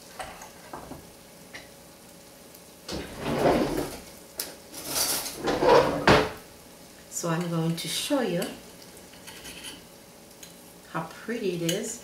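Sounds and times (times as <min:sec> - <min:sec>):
plate scraping on cutting board: 0:02.9 - 0:04.0, 0:04.8 - 0:06.4.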